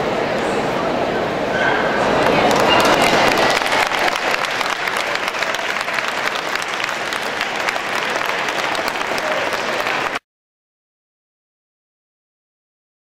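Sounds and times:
audience applauding: 2.1s - 10.2s.

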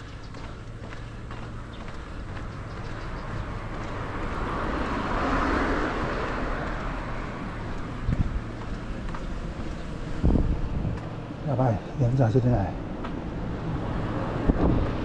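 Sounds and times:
car passing: 0.0s - 15.0s
steady low rumble: 6.0s - 15.0s.

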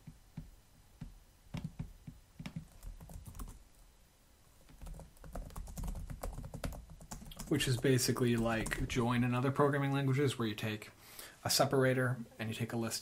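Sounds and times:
keyboard typing: 1.5s - 3.6s, 4.6s - 8.9s.

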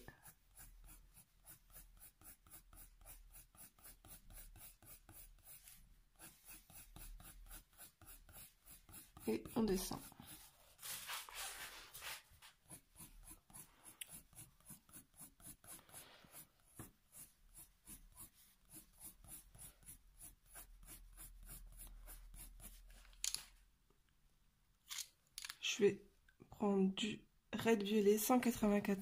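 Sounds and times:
pencil scratching on paper: 0.0s - 23.1s.

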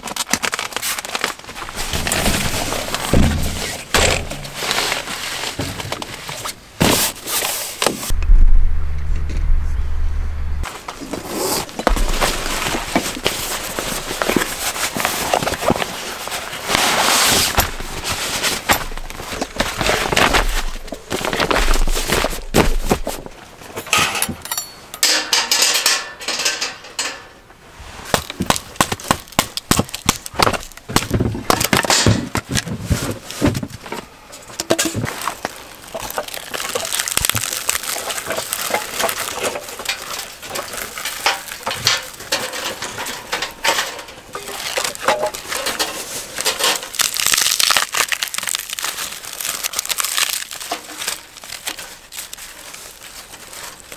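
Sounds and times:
wooden knocks and cracks: 0.0s - 7.1s, 10.8s - 15.9s, 28.1s - 34.0s, 34.6s - 52.4s
dry twigs crunching: 10.6s - 23.4s, 35.1s - 53.9s
fabric bag rustling: 10.7s - 23.3s.

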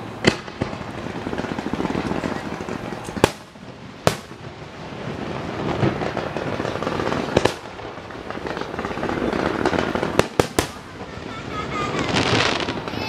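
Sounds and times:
fireworks barrage: 0.0s - 13.0s
sharp firework bangs: 0.0s - 13.0s.

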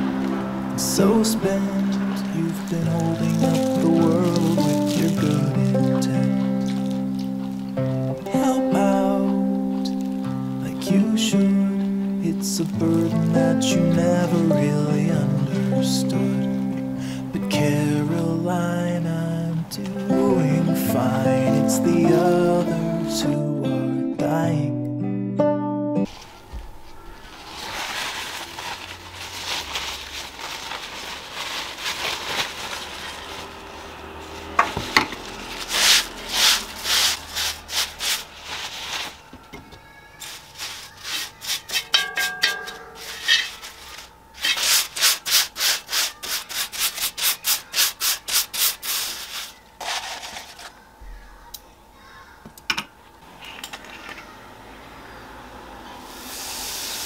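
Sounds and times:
paper towel scrubbing griddle: 0.0s - 15.1s, 26.1s - 50.9s, 56.1s - 57.0s
liquid sizzling on hot pan: 56.0s - 57.0s.

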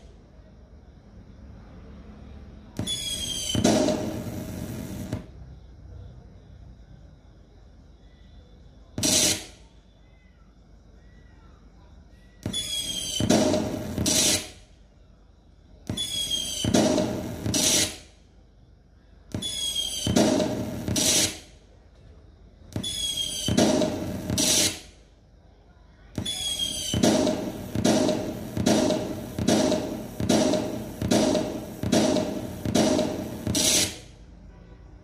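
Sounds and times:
firework bang: 2.8s - 5.3s, 9.0s - 9.5s, 12.4s - 14.6s, 15.9s - 18.1s, 19.3s - 21.5s, 22.8s - 24.9s, 26.2s - 34.1s
firework whistle: 2.8s - 5.3s, 9.0s - 9.6s, 12.4s - 14.6s, 15.9s - 18.1s, 19.4s - 21.5s, 22.8s - 25.0s, 26.2s - 34.1s.

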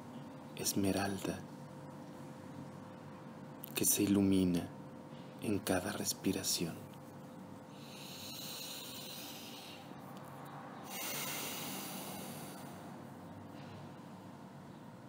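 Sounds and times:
person breathing close to microphone: 7.7s - 10.0s, 10.8s - 14.0s.

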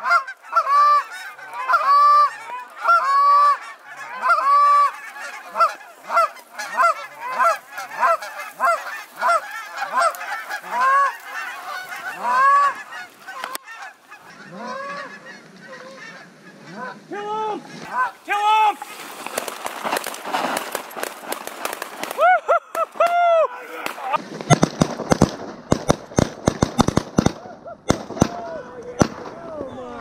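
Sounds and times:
geese honking: 0.0s - 24.6s.

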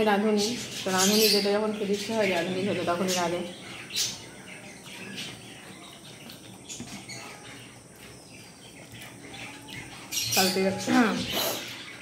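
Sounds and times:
chewing and mouth smacks: 5.9s - 7.1s.

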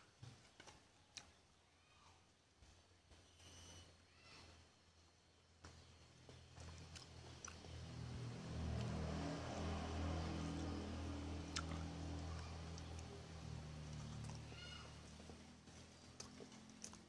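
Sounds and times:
chewing and mouth noise: 6.3s - 9.8s, 10.6s - 17.0s.

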